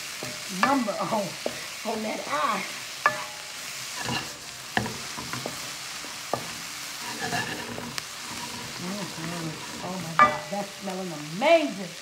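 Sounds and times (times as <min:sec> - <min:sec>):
vegetables sizzling in wok: 0:00.0 - 0:12.0
spatula knocking against pan: 0:10.2 - 0:10.5.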